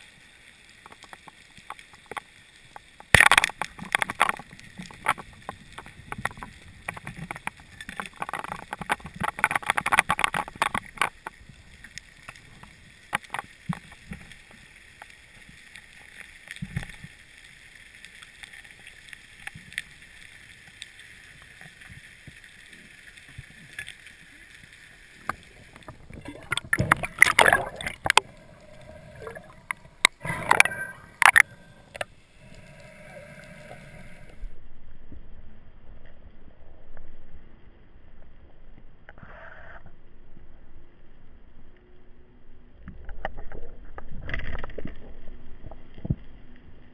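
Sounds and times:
crackling clicks underwater: 0.0s - 34.5s, 42.8s - 46.9s
muffled water noise: 0.0s - 46.9s
underwater hiss: 24.1s - 34.6s.

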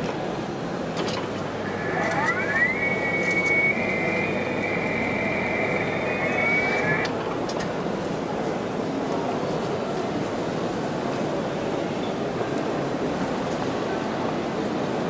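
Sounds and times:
steady background noise: 0.0s - 15.0s
high whine rising in pitch: 1.3s - 7.1s.

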